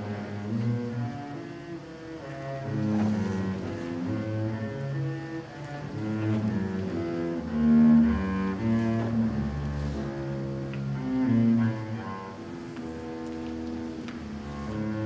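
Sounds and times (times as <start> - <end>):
bowed double bass: 0.0 - 15.0.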